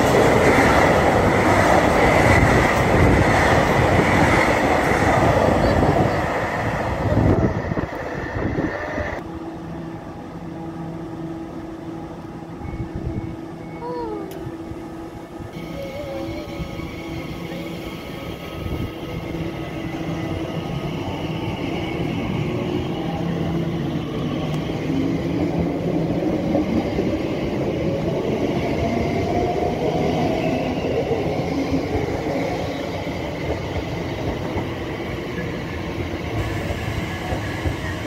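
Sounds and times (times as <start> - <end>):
electric train traction hum: 0.0 - 38.0.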